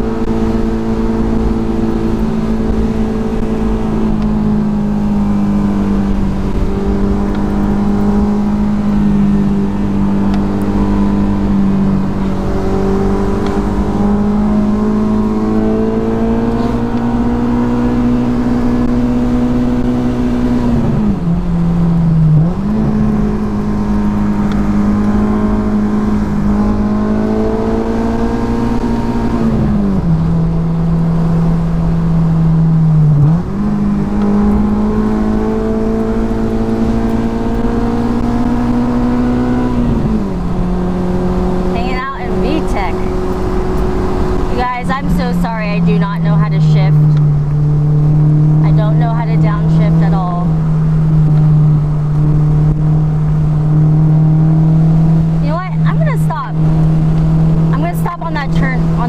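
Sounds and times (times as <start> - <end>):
car engine revving: 0.0 - 59.0.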